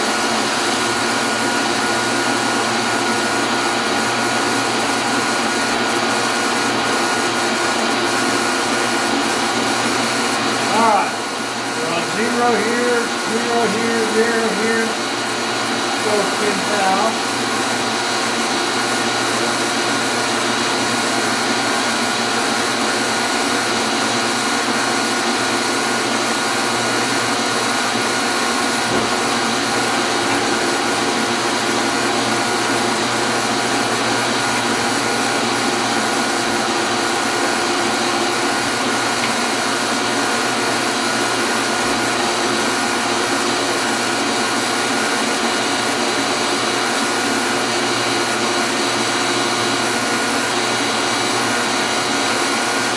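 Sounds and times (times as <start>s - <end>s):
electric motor humming: 0.0s - 52.9s.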